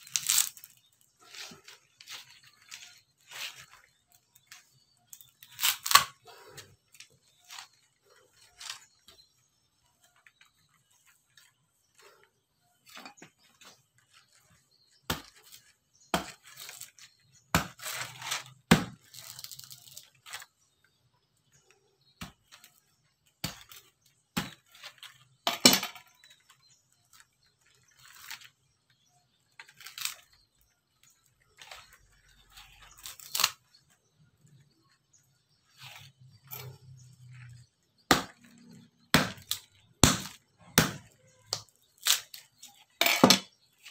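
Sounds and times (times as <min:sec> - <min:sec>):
machete cracking coconut husk: 0:00.0 - 0:06.6, 0:15.0 - 0:20.5, 0:29.7 - 0:30.3, 0:32.6 - 0:33.6, 0:38.1 - 0:43.9
coir fibre tearing: 0:00.0 - 0:09.1, 0:29.6 - 0:30.4, 0:31.6 - 0:33.8, 0:41.5 - 0:42.9.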